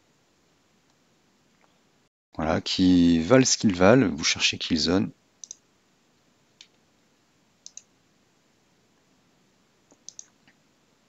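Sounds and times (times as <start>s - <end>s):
computer mouse clicking: 5.4s - 5.6s, 7.6s - 7.9s, 9.9s - 10.6s.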